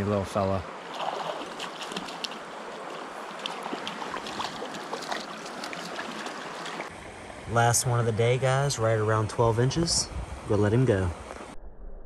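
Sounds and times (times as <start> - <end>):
creek water rushing over rocks: 0.6 - 8.0
fish splashing at surface: 0.9 - 6.9.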